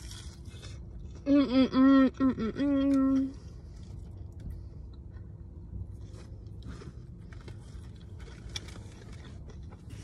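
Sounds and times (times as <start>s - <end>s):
person chewing food: 0.0s - 1.2s, 3.3s - 10.0s
low rumble inside a car: 0.0s - 10.0s.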